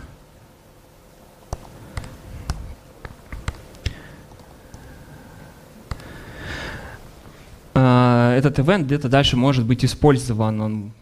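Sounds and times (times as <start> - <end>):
keyboard typing: 1.5 - 4.9.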